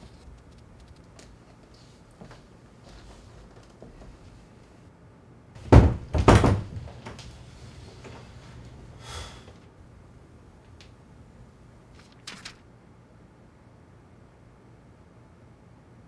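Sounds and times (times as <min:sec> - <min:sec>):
door banging: 0:05.6 - 0:07.2.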